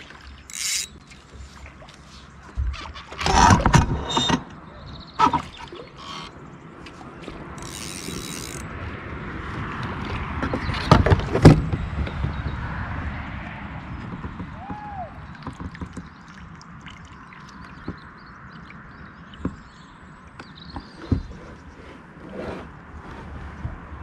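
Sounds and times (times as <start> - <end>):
knocks and rattles on kayak: 1.8 - 4.6, 9.4 - 16.6, 17.4 - 24.0.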